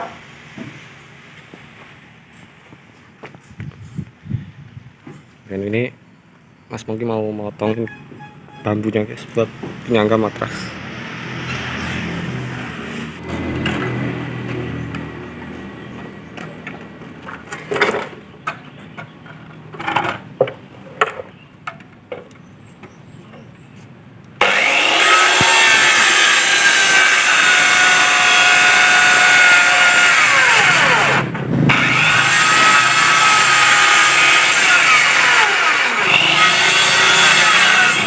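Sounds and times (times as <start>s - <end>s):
circular saw cutting bamboo: 24.4s - 38.0s.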